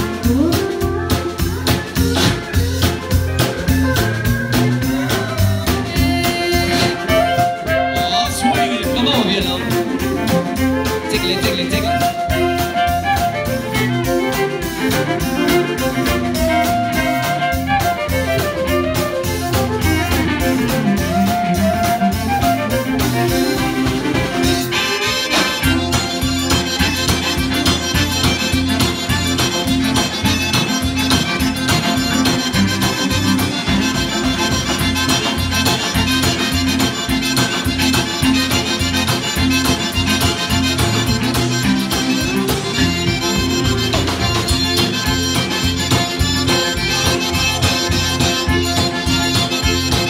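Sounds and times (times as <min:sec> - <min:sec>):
acoustic guitar: 0:00.0 - 0:50.0
button accordion: 0:00.0 - 0:50.0
drum kit beat: 0:00.0 - 0:50.0
fiddles playing melody: 0:00.0 - 0:50.0.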